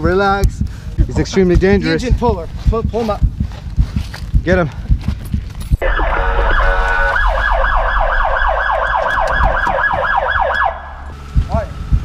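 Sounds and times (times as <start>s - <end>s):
low rumble of car: 0.0s - 12.0s
police siren yelping: 5.8s - 11.1s.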